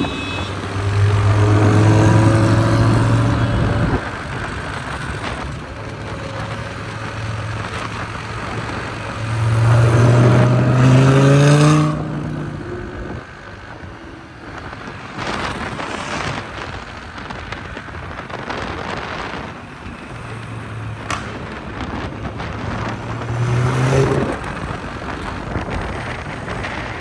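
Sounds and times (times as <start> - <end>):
road traffic noise: 0.0 - 27.0
car engine revving: 0.6 - 13.6, 20.1 - 26.9.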